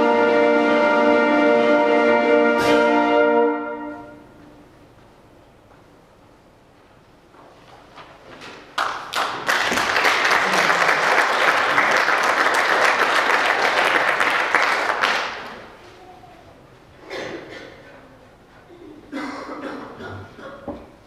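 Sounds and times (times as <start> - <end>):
audience applauding: 8.8 - 15.8.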